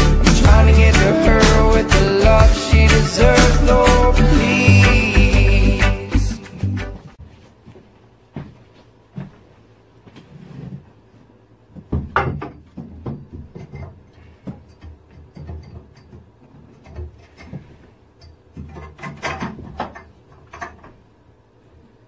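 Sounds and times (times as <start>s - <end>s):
metal conduit knocks and clanks: 11.8s - 17.6s.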